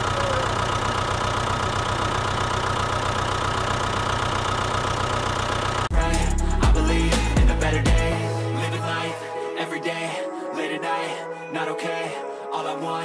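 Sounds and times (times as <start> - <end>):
tractor engine idling: 0.0 - 8.2.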